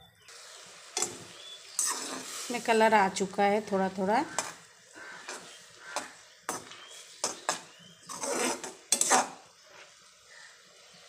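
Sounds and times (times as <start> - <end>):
spoon scraping pot: 1.0 - 2.4, 4.2 - 9.4
spoon clinking on metal pot: 8.9 - 9.3.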